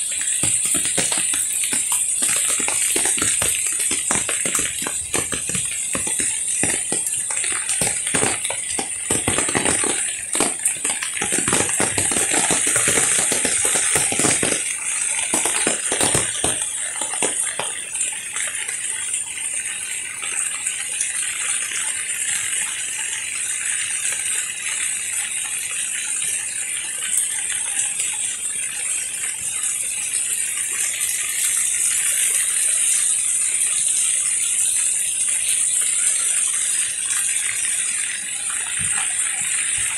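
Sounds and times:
heavy rain on foliage and paving: 0.0 - 18.1.

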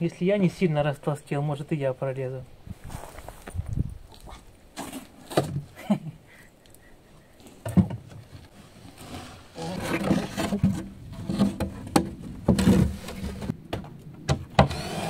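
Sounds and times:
knocks and scraping on wood: 4.8 - 5.7, 7.6 - 15.0.

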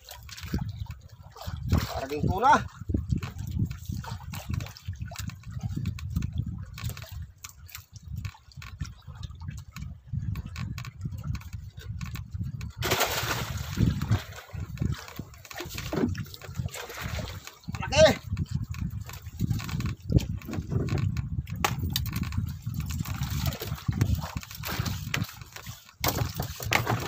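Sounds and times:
water sloshing and trickling: 0.0 - 27.0
water splashing rush: 12.8 - 18.2.

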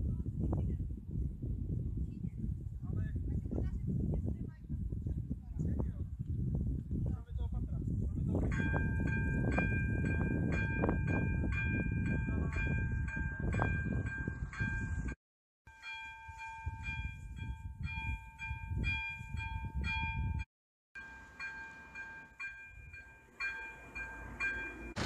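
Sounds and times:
level crossing bell ringing: 15.7 - 20.4, 21.0 - 25.0.

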